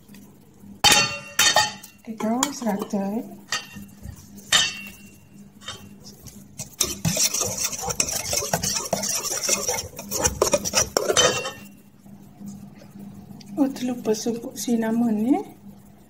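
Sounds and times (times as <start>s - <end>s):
whisk beating batter in metal bowl: 3.5s - 11.7s.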